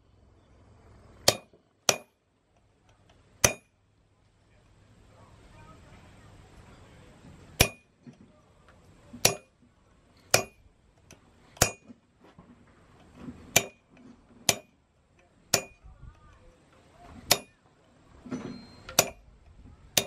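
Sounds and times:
hammer blows on metal: 15.5 - 15.9, 17.3 - 17.6, 18.6 - 19.3.

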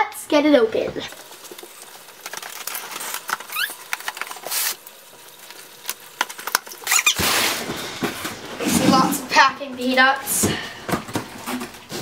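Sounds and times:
tape tearing: 1.4 - 8.4
scissors cutting packing tape: 2.4 - 4.8.

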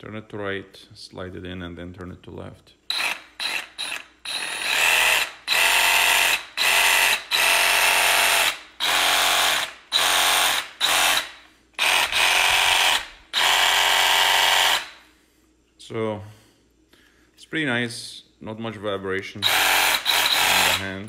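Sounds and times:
reciprocating saw running: 2.9 - 14.9, 19.4 - 21.0.

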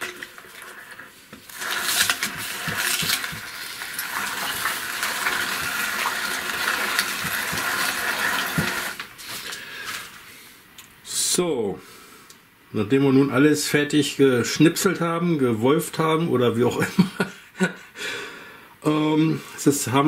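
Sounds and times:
hand-cranked meat grinder grinding: 0.0 - 9.1.

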